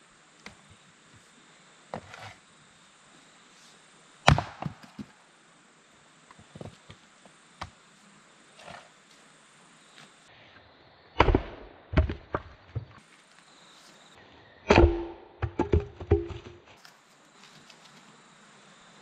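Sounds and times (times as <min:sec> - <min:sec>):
firewood knocks and cracks: 0:04.2 - 0:05.1, 0:11.2 - 0:13.0, 0:14.7 - 0:16.7.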